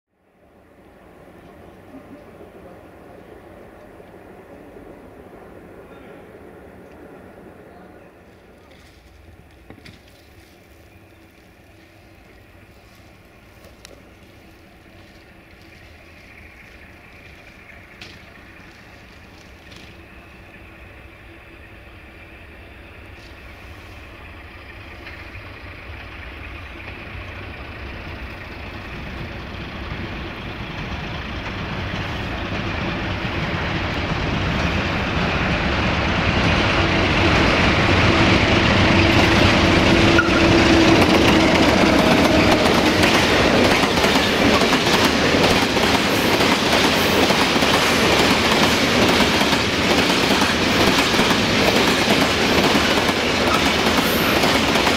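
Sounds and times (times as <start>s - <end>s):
diesel locomotive engine: 0.1s - 54.9s
train wheels clattering over rail joints: 13.6s - 20.0s, 36.2s - 54.9s.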